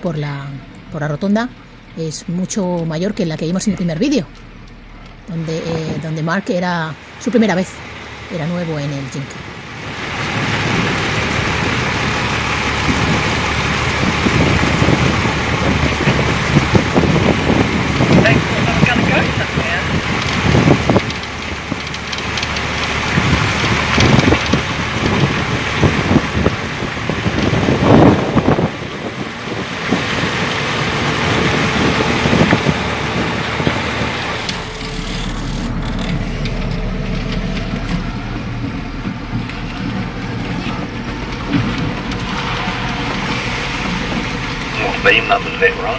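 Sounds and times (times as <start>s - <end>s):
low buffeting: 0.0s - 45.9s
truck engine and tyres rumbling: 0.0s - 45.9s
faint clicks and rattles: 19.8s - 25.3s.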